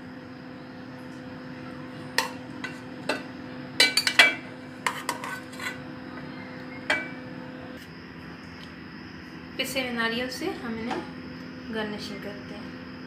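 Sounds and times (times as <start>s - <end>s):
metal spoon clinking on steel pot: 3.8s - 5.8s.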